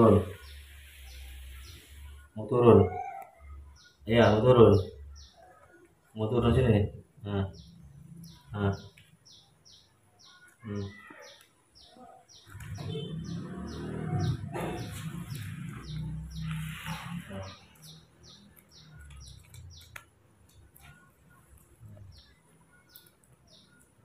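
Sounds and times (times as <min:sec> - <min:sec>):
small bird chirping: 0:00.0 - 0:06.7, 0:07.3 - 0:24.0.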